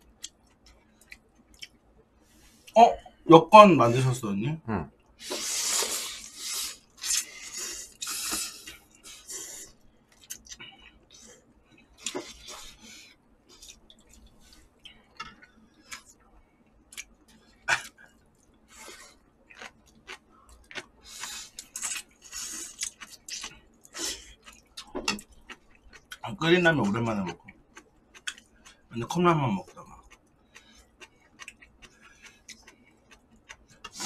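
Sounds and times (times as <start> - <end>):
chewing: 0.0 - 1.8, 5.2 - 26.2, 26.8 - 29.0, 29.6 - 34.0
people slurping noodles: 5.2 - 9.8.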